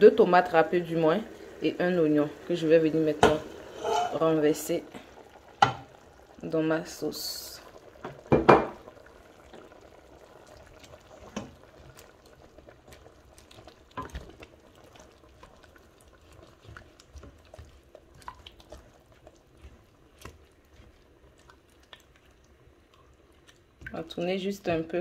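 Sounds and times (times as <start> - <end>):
soft wet stirring: 8.9 - 25.0.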